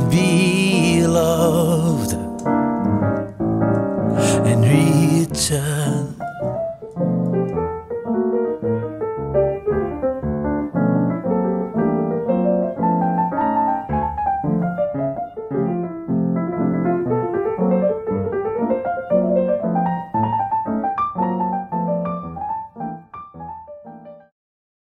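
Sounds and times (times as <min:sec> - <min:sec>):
solo jazz piano: 0:00.0 - 0:24.3.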